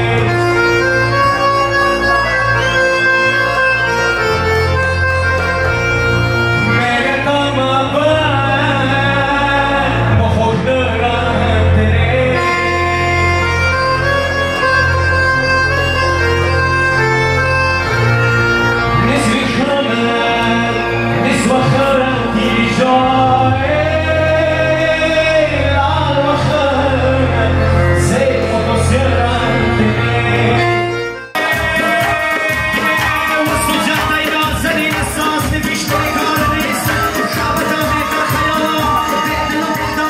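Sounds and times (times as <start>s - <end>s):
man singing into a microphone: 0.0s - 2.7s, 6.4s - 14.2s, 18.8s - 40.0s
loud amplified music: 0.0s - 40.0s
song with a steady beat: 28.0s - 40.0s.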